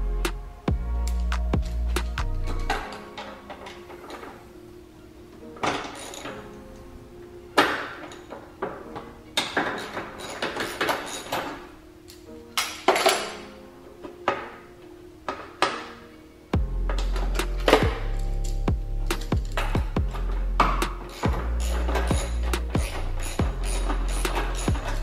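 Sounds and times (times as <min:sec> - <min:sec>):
background music: 0:00.0 - 0:25.0
wrench clinking on metal: 0:01.0 - 0:04.4, 0:05.6 - 0:06.8, 0:07.6 - 0:13.6, 0:16.9 - 0:25.0.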